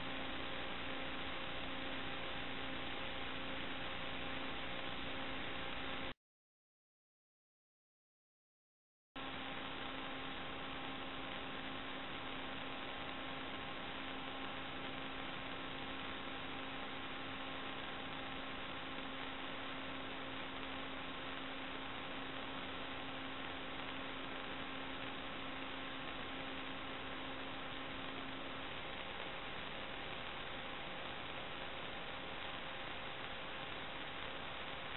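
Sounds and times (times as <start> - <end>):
electrical hiss: 0.0 - 6.1, 9.2 - 34.9
faint hum tones: 0.0 - 6.2, 9.2 - 34.9.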